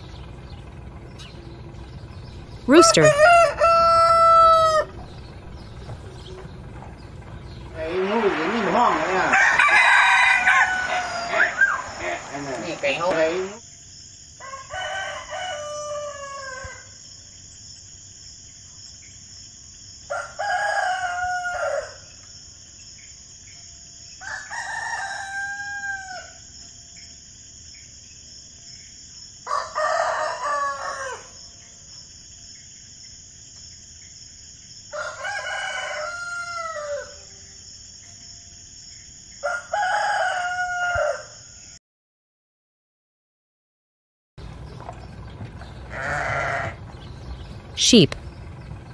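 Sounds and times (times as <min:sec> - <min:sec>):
rooster crowing: 0:02.7 - 0:05.0, 0:09.2 - 0:12.0, 0:14.4 - 0:17.0, 0:20.1 - 0:22.1, 0:24.2 - 0:26.5, 0:29.4 - 0:31.4, 0:34.9 - 0:37.4, 0:39.4 - 0:41.7.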